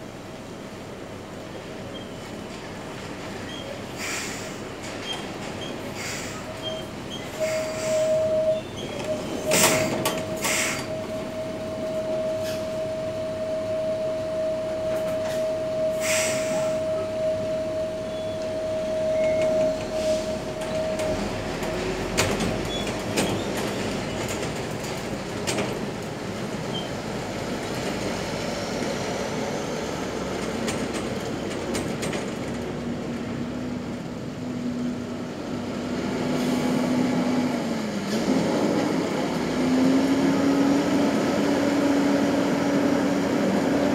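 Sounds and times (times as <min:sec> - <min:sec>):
truck diesel engine under load: 0:00.0 - 0:43.9
air brake hisses: 0:04.0 - 0:04.6, 0:05.9 - 0:06.6, 0:07.3 - 0:08.4, 0:09.5 - 0:11.0, 0:12.4 - 0:12.8, 0:15.3 - 0:16.9, 0:19.9 - 0:20.5.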